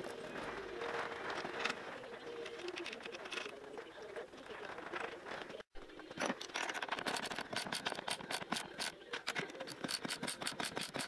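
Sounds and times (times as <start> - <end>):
ratchet wrench clicking rapidly: 9.7 - 11.0.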